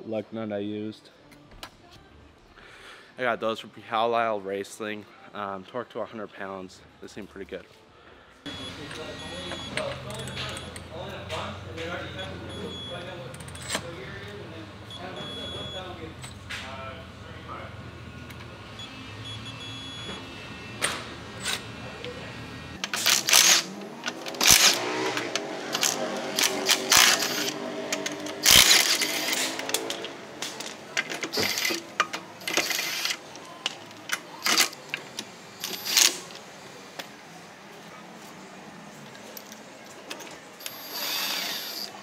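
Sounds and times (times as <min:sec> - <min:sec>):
metallic clicks of wrenches: 0:22.8 - 0:36.3.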